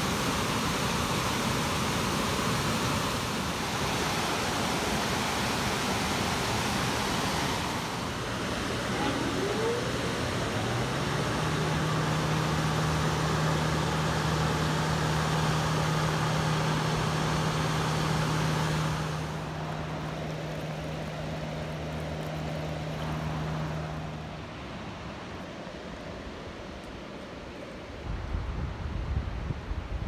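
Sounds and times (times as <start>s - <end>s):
river water rushing over stones: 0.0s - 18.1s
low motor hum: 6.4s - 25.4s.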